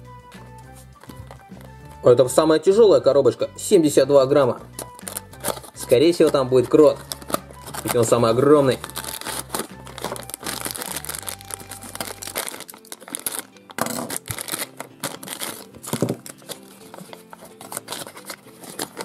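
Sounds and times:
soft background music: 0.0 - 19.0
wrapping paper crinkling: 4.8 - 19.0.

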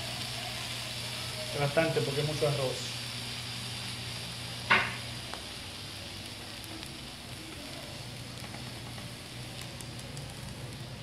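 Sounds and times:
rice sizzling in a pan: 0.0 - 11.0.

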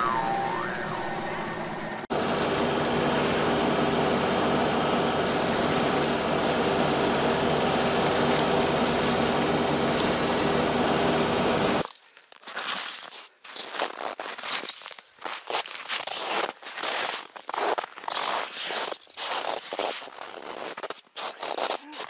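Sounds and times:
vehicle running inside cabin: 1.8 - 11.8.

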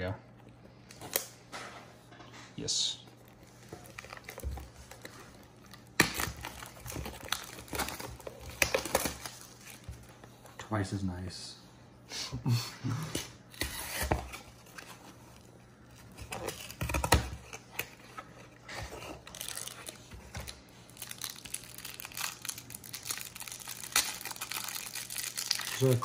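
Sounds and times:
foil wrapping crinkling and tearing: 3.4 - 9.9, 16.2 - 26.0.

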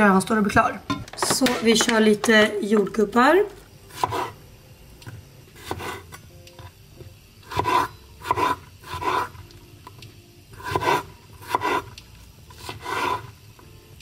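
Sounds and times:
knife slicing strawberries on wood: 3.9 - 4.4, 5.0 - 6.2, 7.4 - 9.3, 10.6 - 11.9, 12.5 - 13.3.

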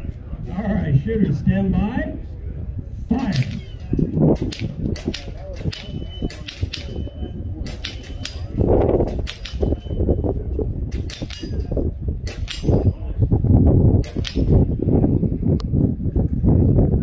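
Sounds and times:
low background rumble: 0.0 - 17.0
airgun shots: 3.1 - 7.0, 14.0 - 14.6
pellets hitting steel targets: 3.2 - 7.1, 7.7 - 10.1.

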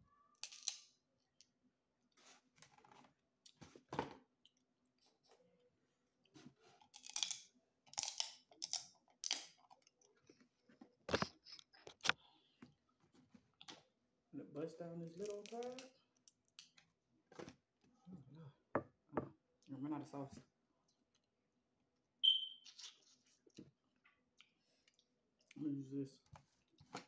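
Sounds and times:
crab shells cracking: 0.4 - 1.0, 7.0 - 10.0, 15.2 - 16.8
close-up chewing: 8.4 - 12.6.

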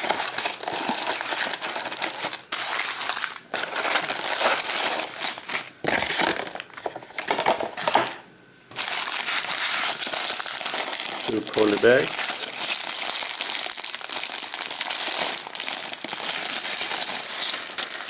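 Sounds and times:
plastic bags crinkling: 0.0 - 8.0, 8.7 - 18.0.

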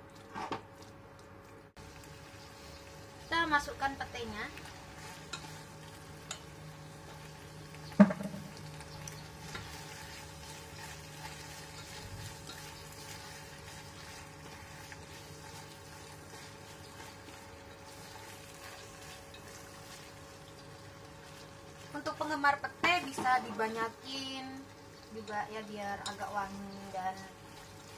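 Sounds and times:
food sizzling in a saucepan: 1.8 - 27.9
utensil knocking against pan: 8.0 - 8.5.

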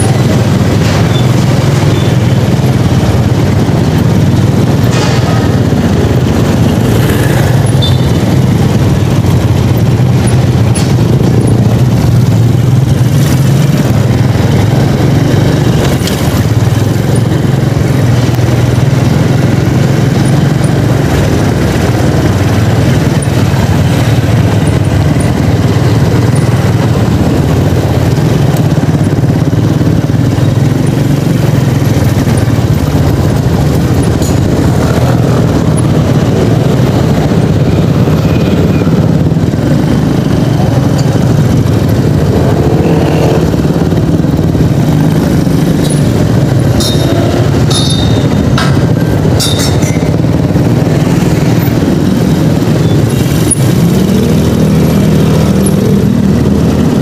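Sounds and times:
road and wind noise: 0.0 - 57.0
scooter engine running: 0.0 - 57.0.

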